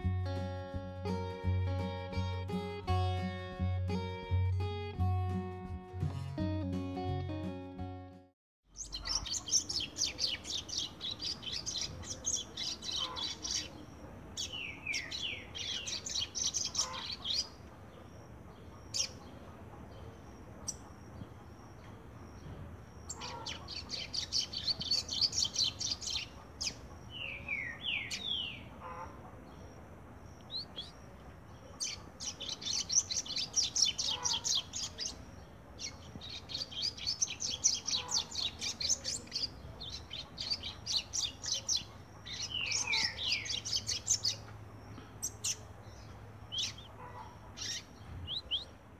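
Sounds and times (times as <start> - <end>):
bird singing trilled phrases: 8.7 - 18.3, 20.0 - 28.7, 29.5 - 47.0.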